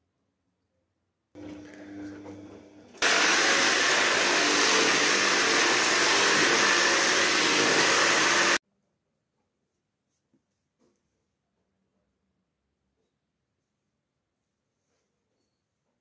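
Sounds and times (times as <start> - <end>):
vacuum cleaner running: 1.4 - 8.6.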